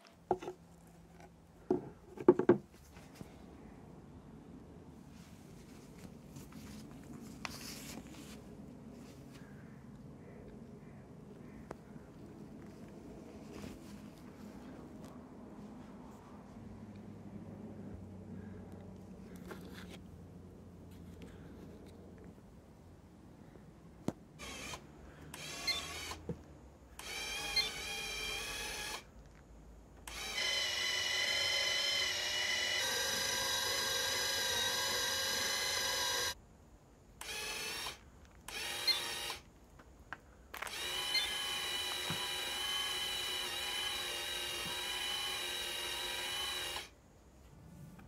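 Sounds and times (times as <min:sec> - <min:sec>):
electric motor whining: 0:30.1 - 0:36.4, 0:40.6 - 0:46.9.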